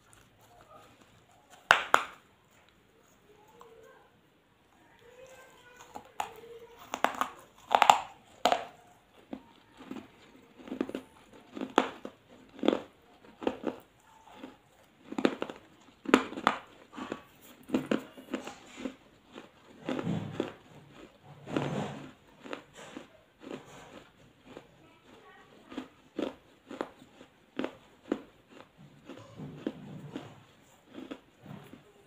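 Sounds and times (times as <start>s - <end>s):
gritty crunching between teeth: 0.0s - 3.7s, 5.2s - 31.9s
quiet chewing: 0.0s - 32.0s.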